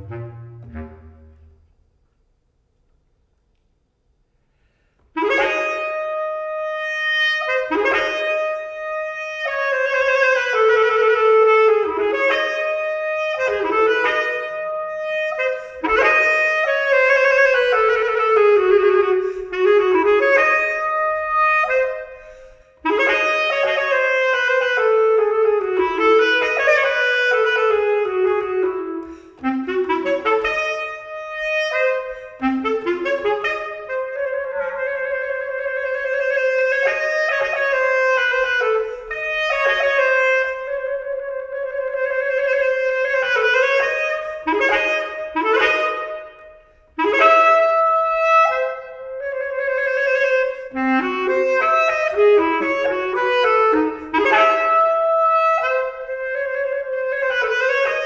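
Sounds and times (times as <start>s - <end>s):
bass clarinet playing: 0.0s - 2.0s, 5.2s - 58.0s.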